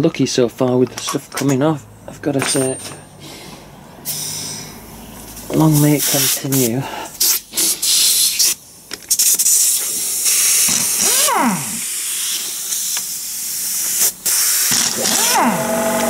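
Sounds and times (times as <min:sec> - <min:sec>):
pneumatic impact wrench hissing: 0:04.0 - 0:05.3, 0:05.9 - 0:16.0
motor whine spinning down: 0:14.9 - 0:16.0.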